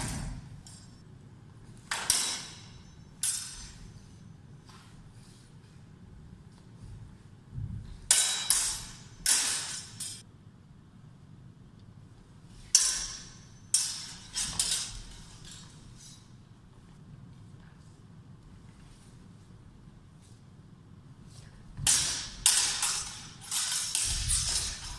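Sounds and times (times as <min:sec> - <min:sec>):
steel swords clashing: 0:01.9 - 0:04.3, 0:08.1 - 0:10.2, 0:12.6 - 0:16.3, 0:21.8 - 0:24.9.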